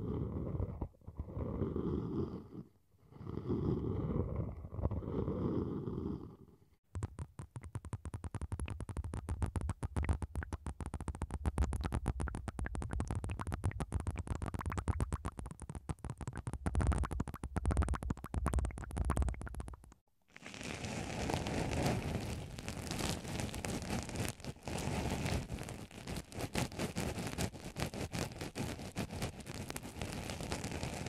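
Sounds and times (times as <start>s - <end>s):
wet crackling and popping: 6.8s - 31.0s
wooden spoons rubbing on microphone: 20.4s - 31.0s.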